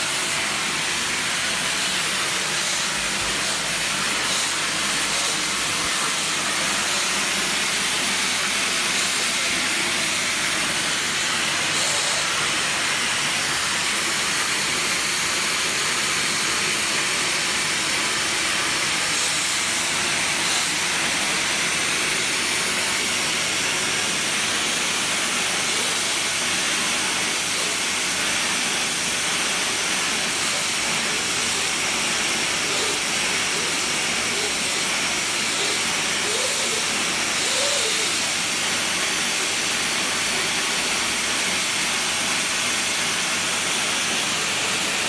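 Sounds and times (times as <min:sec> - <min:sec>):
vacuum cleaner hissing: 0:00.0 - 0:45.0.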